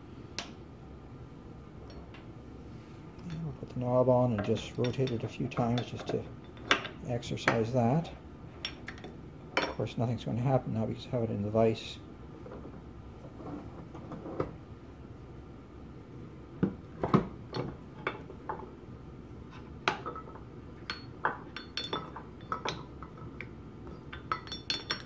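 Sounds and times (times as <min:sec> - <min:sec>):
steel parts clicking and clinking: 0:04.3 - 0:07.8, 0:19.9 - 0:25.0.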